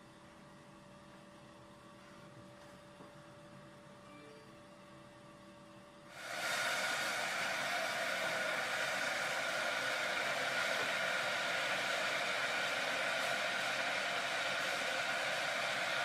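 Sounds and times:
pot of syrup hissing: 6.1 - 16.0.

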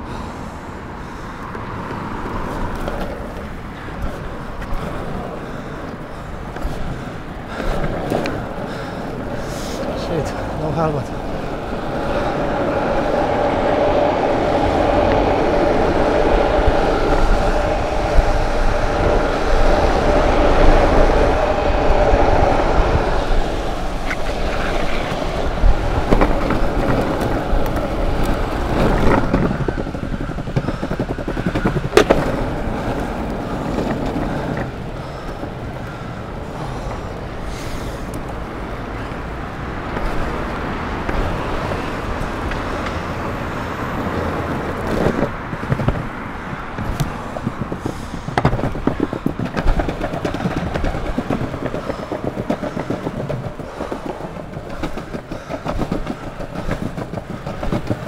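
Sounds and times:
longboard wheels rumbling on pavement: 0.0 - 58.0
wind on microphone: 0.0 - 58.0
sharp knocks of wheels: 23.5 - 58.0.

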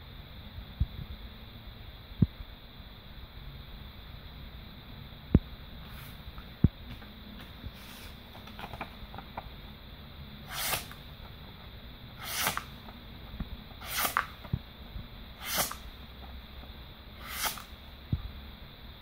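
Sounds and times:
knife slicing through paper: 10.5 - 11.0, 12.2 - 12.8, 13.8 - 14.4, 15.4 - 15.9, 17.2 - 17.8.

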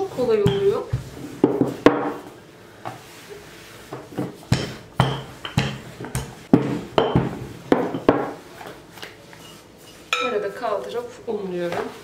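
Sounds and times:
rolling pin knocking on countertop: 0.3 - 2.2, 4.2 - 8.4.

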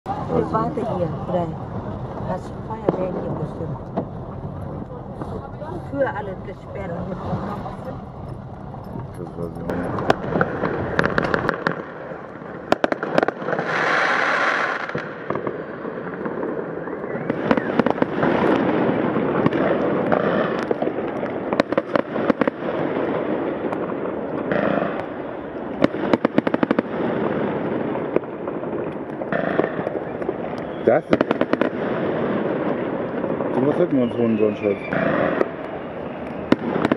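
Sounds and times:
fireworks crackling: 0.0 - 36.9
firecracker and rocket bangs: 8.9 - 36.9.

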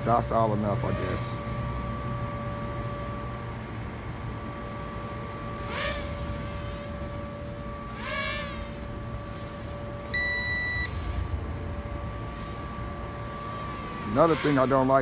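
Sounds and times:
toy drone motors whining: 0.0 - 2.1, 4.7 - 11.2, 12.1 - 15.0
electronic beep: 10.1 - 11.0.

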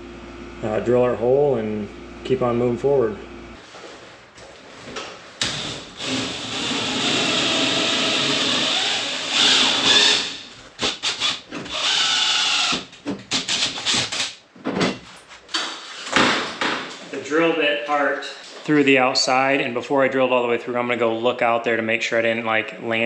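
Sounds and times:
drill with hole saw cutting steel: 5.4 - 14.3.

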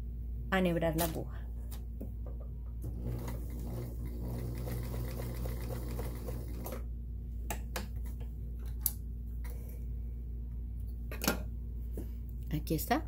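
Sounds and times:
sewing machine running: 2.8 - 6.8.

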